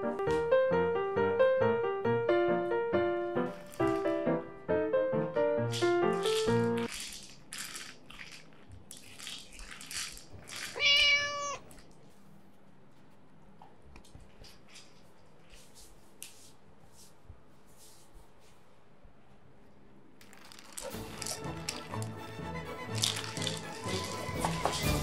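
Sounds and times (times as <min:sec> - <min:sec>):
light piano tune: 0:00.0 - 0:06.9
plastic toy rattling: 0:05.7 - 0:11.4, 0:20.2 - 0:25.0.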